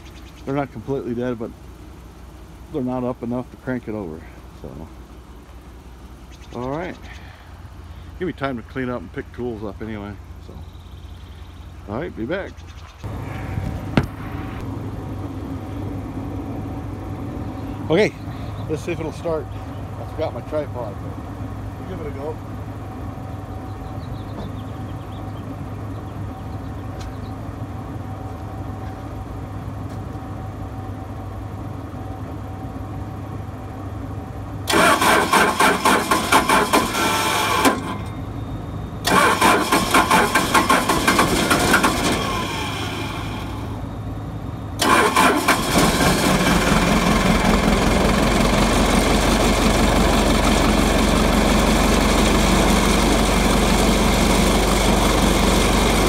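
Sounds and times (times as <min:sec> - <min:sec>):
diesel engine running: 0:00.0 - 0:56.0
starter cranking engine: 0:34.6 - 0:37.9, 0:39.0 - 0:43.2, 0:44.8 - 0:50.9.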